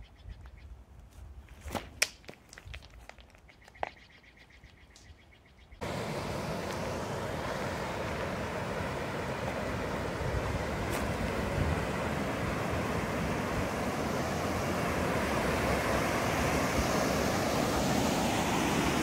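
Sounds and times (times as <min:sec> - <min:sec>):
whitewater rapids rushing: 0:05.8 - 0:19.0.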